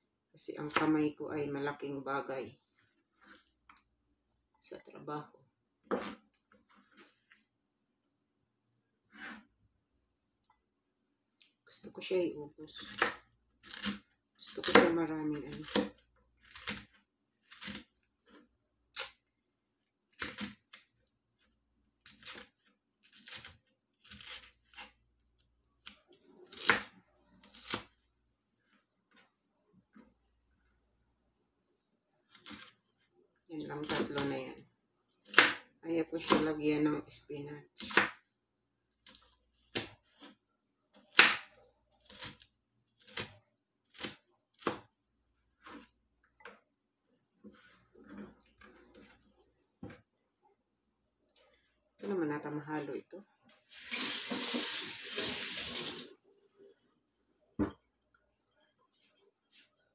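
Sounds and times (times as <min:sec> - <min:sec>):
knife chopping on plastic board: 0:35.3 - 0:35.6.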